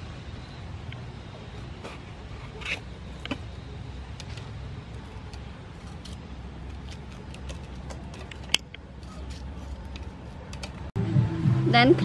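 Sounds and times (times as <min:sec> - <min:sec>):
knife slitting peppers: 0:05.0 - 0:10.8.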